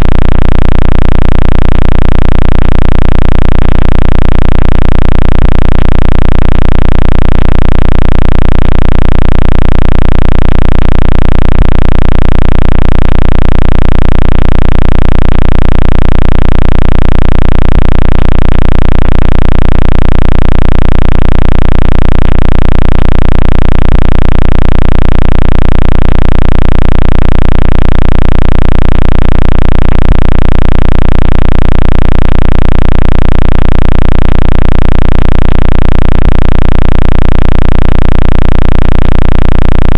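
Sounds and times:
synthetic low pulsing hum: 0:00.0 - 0:10.4.

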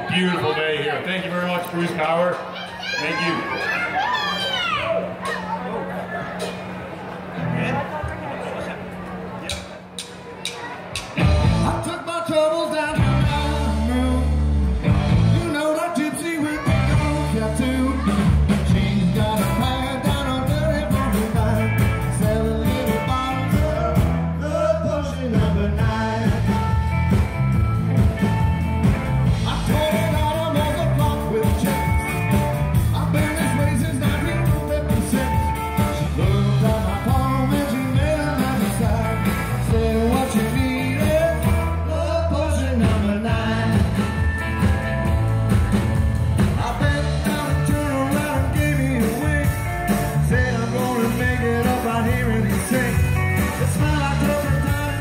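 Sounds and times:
live rock band playing: 0:09.5 - 0:55.0
man singing lead: 0:11.2 - 0:27.0, 0:29.3 - 0:44.4, 0:46.5 - 0:55.0.

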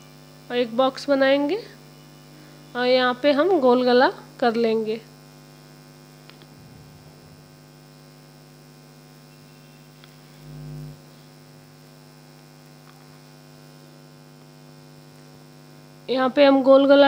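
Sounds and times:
electrical mains hum: 0:00.0 - 0:17.0
short low bump: 0:06.5 - 0:07.5.

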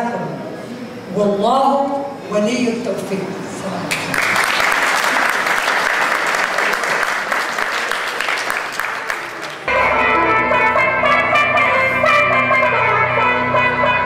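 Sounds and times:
audience applauding: 0:03.9 - 0:09.7
electronic keyboard music: 0:09.6 - 0:14.0.

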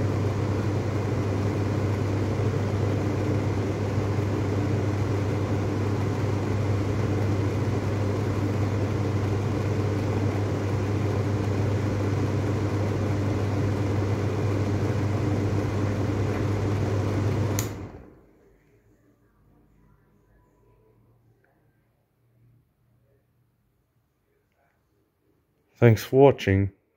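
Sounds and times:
exhaust fan running: 0:00.0 - 0:18.3
switch click: 0:17.6 - 0:17.8.

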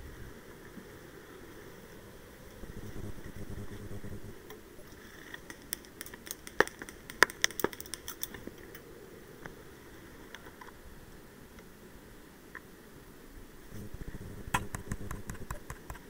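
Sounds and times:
twigs snapping and crackling: 0:05.1 - 0:08.8
microphone handling rumble: 0:13.7 - 0:15.7.

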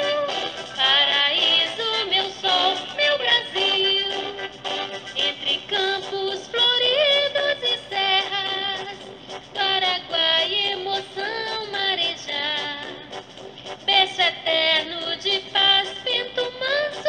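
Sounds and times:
anthem sung over music: 0:00.0 - 0:17.0.

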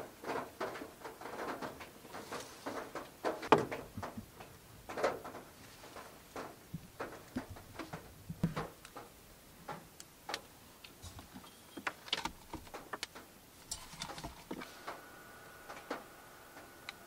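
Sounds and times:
bottles tapping on wooden shelf: 0:03.4 - 0:03.9.

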